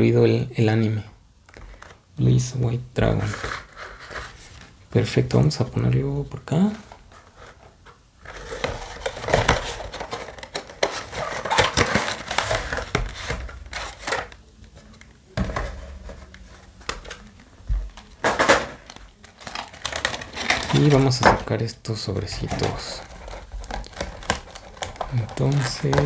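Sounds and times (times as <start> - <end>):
packaging rustling and crinkling: 6.5 - 26.0.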